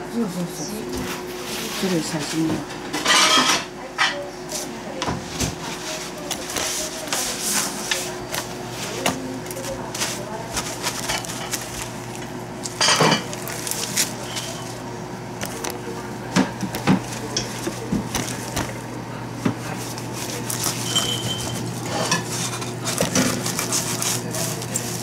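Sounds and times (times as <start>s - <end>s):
paper rustling: 5.7s - 14.8s, 15.4s - 25.0s.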